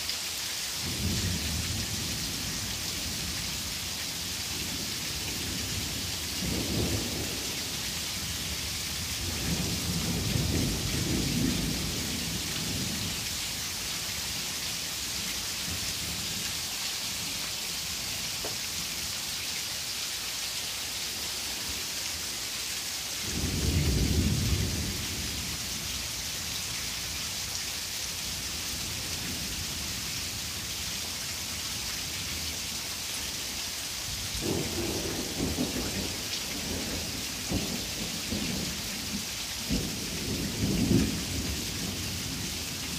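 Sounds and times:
heavy rain pouring: 0:00.0 - 0:42.9
thunder rumbling: 0:34.4 - 0:39.0.

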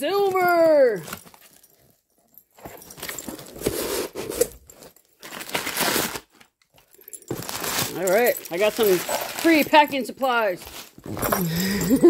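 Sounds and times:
packing paper rustling and crinkling: 0:02.6 - 0:12.0.

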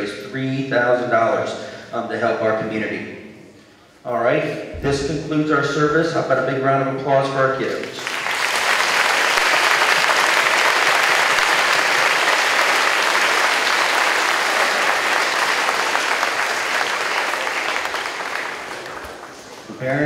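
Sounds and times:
audience applauding: 0:07.8 - 0:19.8.

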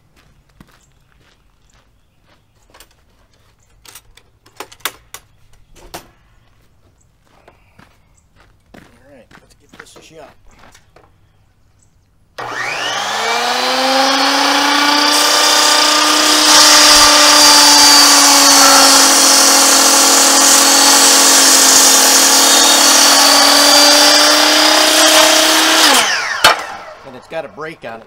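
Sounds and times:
circular saw cutting timber: 0:12.4 - 0:28.0.

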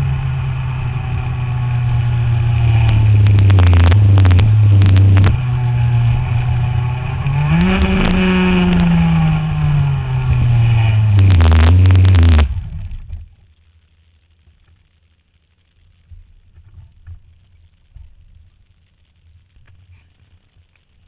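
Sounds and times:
kart engine revving with sharp cracks: 0:00.0 - 0:13.3.

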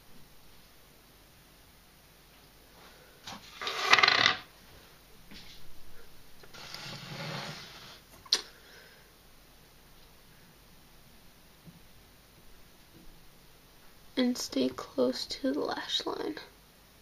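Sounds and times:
soft shuffle: 0:04.6 - 0:08.0.

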